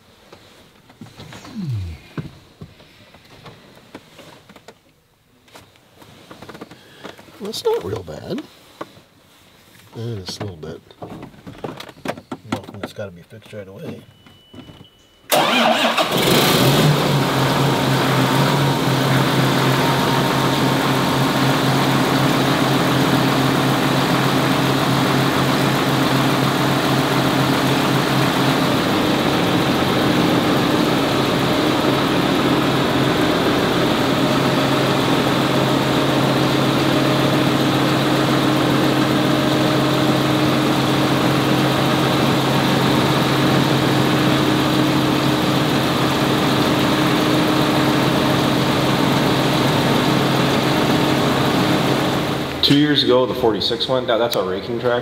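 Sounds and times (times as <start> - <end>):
tractor diesel engine idling: 15.3 - 54.0.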